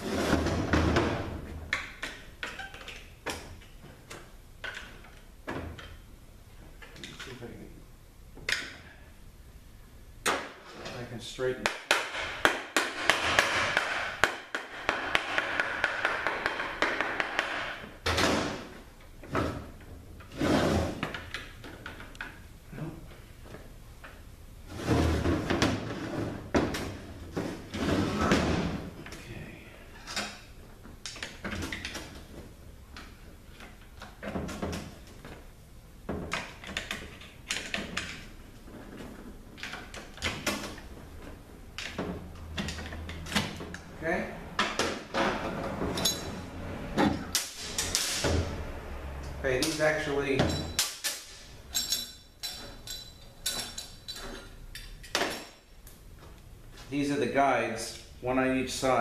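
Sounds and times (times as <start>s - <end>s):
metal clunking and scraping: 44.5s - 55.6s.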